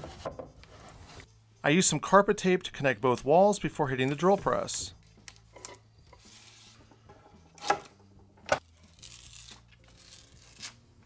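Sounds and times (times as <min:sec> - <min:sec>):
tape ripping: 0:08.8 - 0:10.9.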